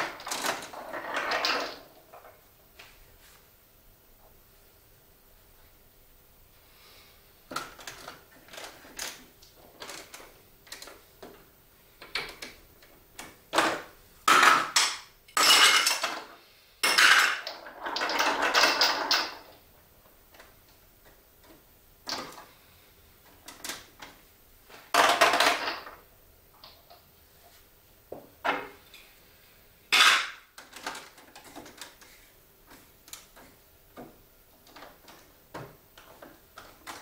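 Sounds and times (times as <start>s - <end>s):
marbles clattering on plastic: 0.0s - 2.3s, 16.8s - 19.5s.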